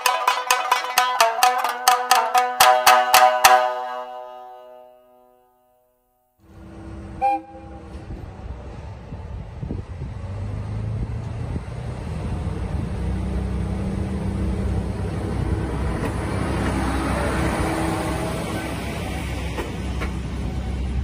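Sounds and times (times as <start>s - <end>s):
diesel railcar passing by: 6.4s - 21.0s.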